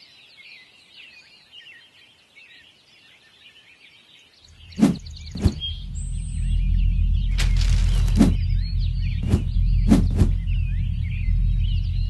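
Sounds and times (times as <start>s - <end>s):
birds chirping: 0.0s - 12.0s
low steady hum: 4.5s - 12.0s.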